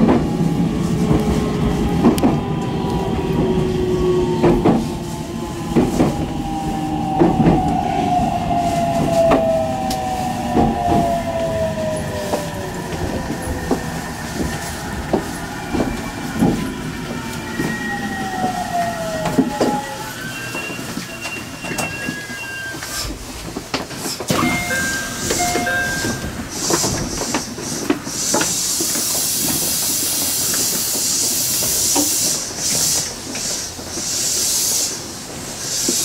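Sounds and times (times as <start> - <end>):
train rumble: 0.0 - 36.0
train wheels clicking over rail joints: 22.9 - 36.0.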